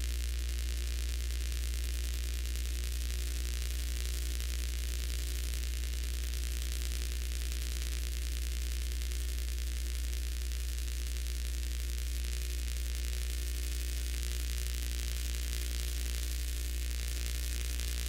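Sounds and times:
low mains hum: 0:00.0 - 0:18.0
electrical hiss: 0:17.1 - 0:18.0.

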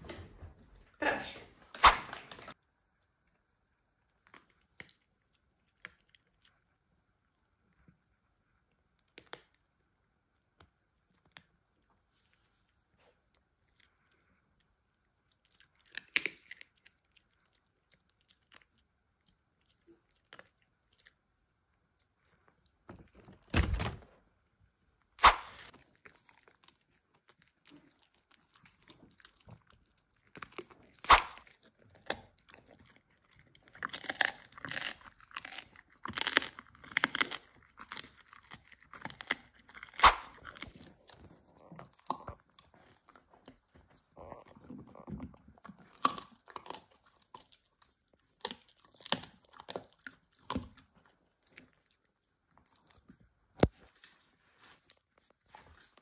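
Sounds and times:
dogs crunching bones: 0:03.2 - 0:08.2, 0:13.0 - 0:24.0, 0:25.2 - 0:53.7.

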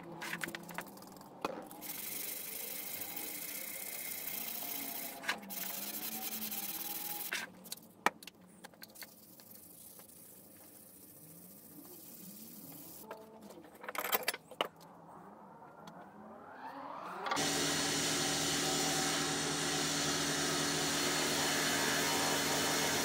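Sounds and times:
blade being sanded: 0:01.8 - 0:07.3.

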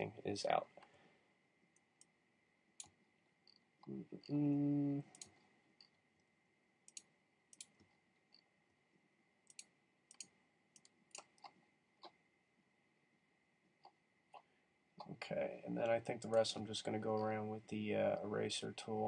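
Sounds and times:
computer mouse clicks: 0:02.8 - 0:03.7, 0:05.1 - 0:06.0, 0:06.9 - 0:08.5, 0:09.4 - 0:12.2.

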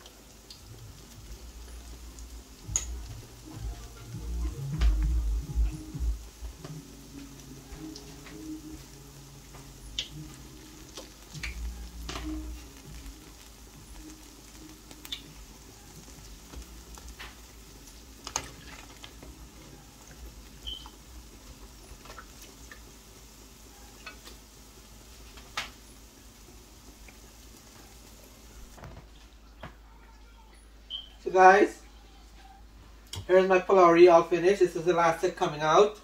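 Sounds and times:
batter deep-frying in oil: 0:00.0 - 0:32.0, 0:32.6 - 0:36.0.

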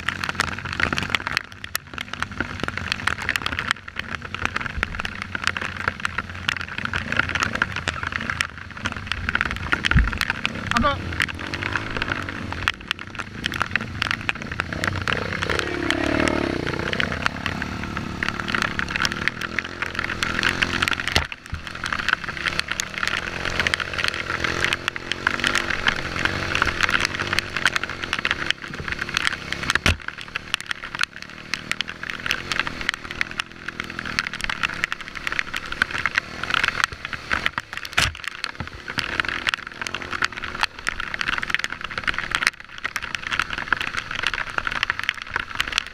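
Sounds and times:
dirt bike engine revving: 0:10.4 - 0:13.8, 0:14.4 - 0:29.6.

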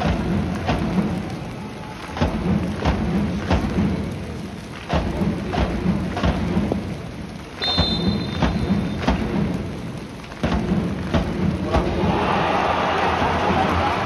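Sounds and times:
scattered knocks: 0:04.9 - 0:07.0, 0:07.8 - 0:09.7, 0:10.3 - 0:12.1
referee's whistle blast: 0:07.6 - 0:09.0.

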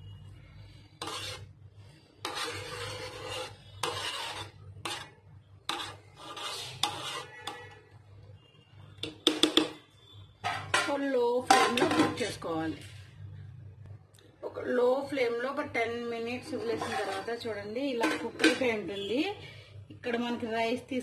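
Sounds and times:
metal spoon scraping pot: 0:00.7 - 0:01.5, 0:02.2 - 0:07.9, 0:10.4 - 0:12.4, 0:16.1 - 0:19.1.

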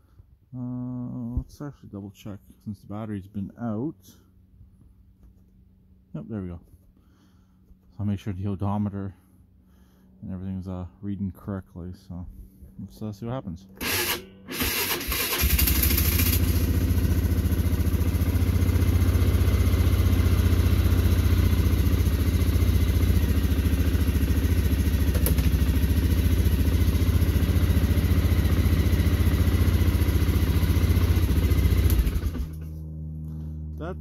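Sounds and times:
engine cranking: 0:13.8 - 0:16.8
atv engine running: 0:13.8 - 0:34.0.

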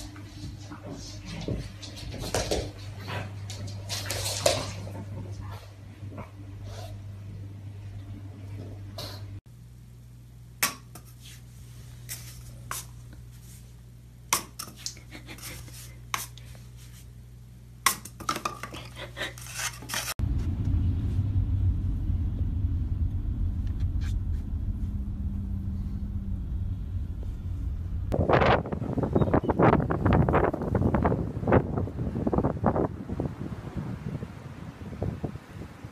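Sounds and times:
road noise inside car: 0:20.2 - 0:28.9.

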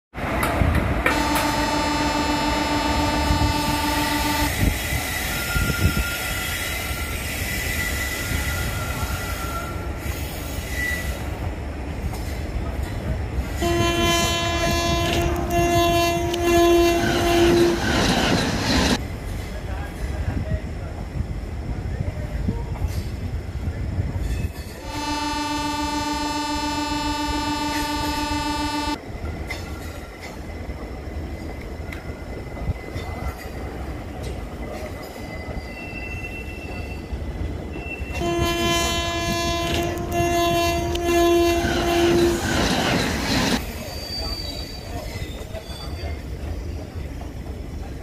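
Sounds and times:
train rumbling past on rails: 0:00.1 - 0:48.0
train horn blast: 0:01.0 - 0:04.8, 0:13.5 - 0:18.1, 0:24.8 - 0:29.0, 0:38.1 - 0:43.0.

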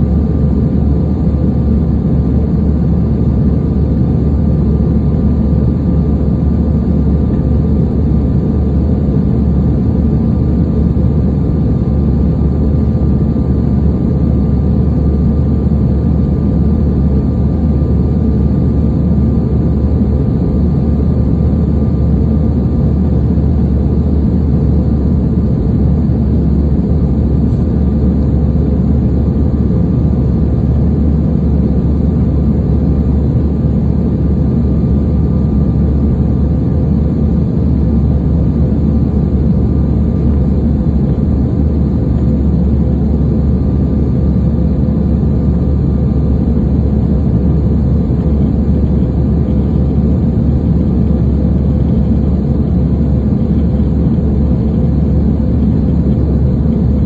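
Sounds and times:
deep rumble of jet engines: 0:00.0 - 0:57.0
faint steady whine: 0:00.0 - 0:57.0.

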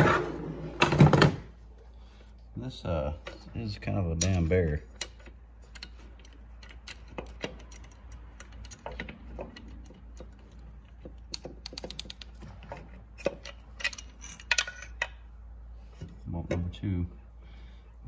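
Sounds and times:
hand ratchet clicking: 0:05.0 - 0:12.4.

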